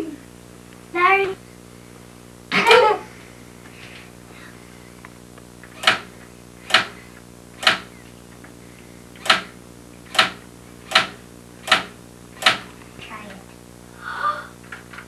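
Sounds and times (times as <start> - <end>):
electric typewriter clacks: 5.7 - 7.0, 7.6 - 7.9, 9.2 - 12.7.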